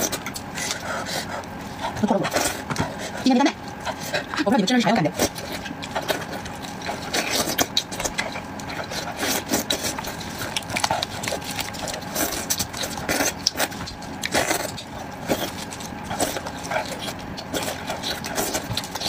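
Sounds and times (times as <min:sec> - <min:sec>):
wet chewing: 0:00.0 - 0:19.0
meat tearing: 0:05.3 - 0:19.0.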